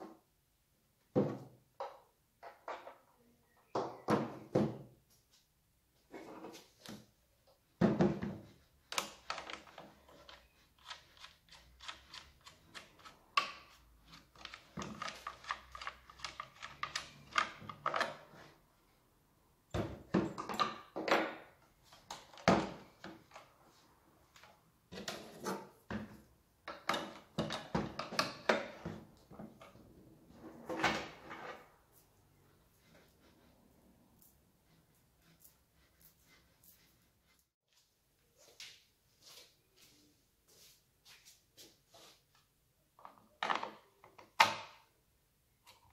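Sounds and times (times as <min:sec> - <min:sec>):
plastic and metal parts clicking: 0:08.9 - 0:18.3.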